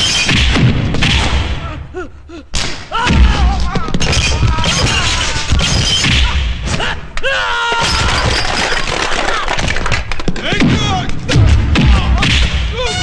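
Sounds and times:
men grunting and yelling: 0:01.6 - 0:08.3
heavy blows and crashes: 0:07.8 - 0:13.0.

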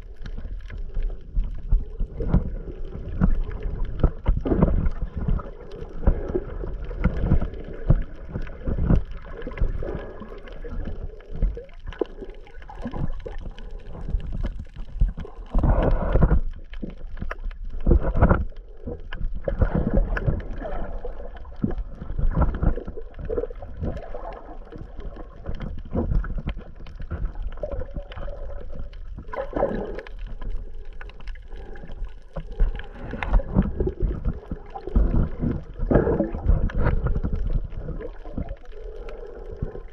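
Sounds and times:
muffled underwater sloshing: 0:00.0 - 0:39.9.

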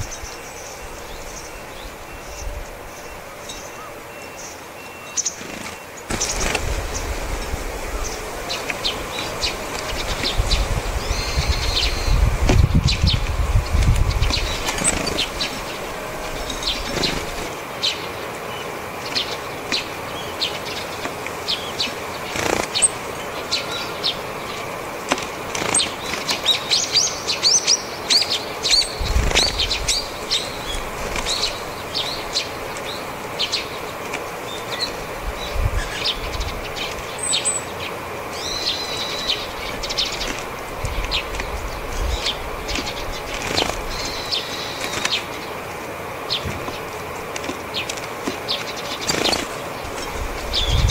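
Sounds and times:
bulbul high piping calls: 0:00.0 - 0:50.9
sparrows chirping: 0:00.0 - 0:50.9
bird wingbeats: 0:05.2 - 0:50.9.

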